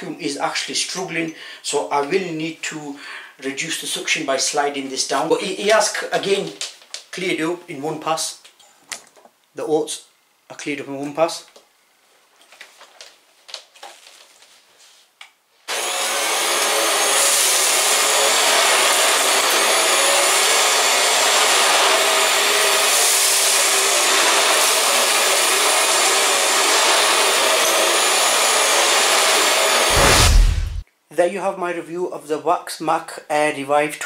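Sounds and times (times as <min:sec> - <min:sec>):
vacuum cleaner running: 0:15.7 - 0:30.8.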